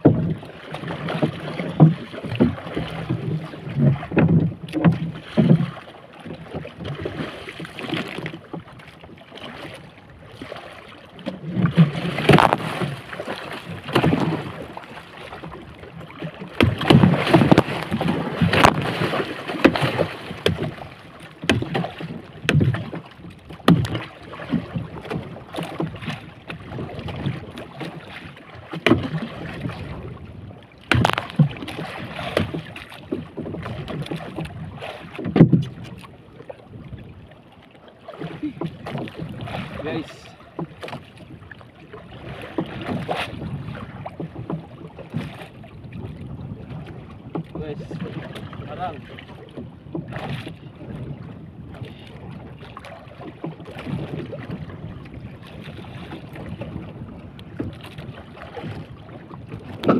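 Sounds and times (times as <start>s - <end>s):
knocks and thuds on boat: 0.0s - 59.9s
fish thrashing in water: 11.6s - 14.8s, 16.5s - 22.9s, 30.9s - 32.9s
wind on microphone: 16.6s - 20.8s, 45.1s - 59.9s.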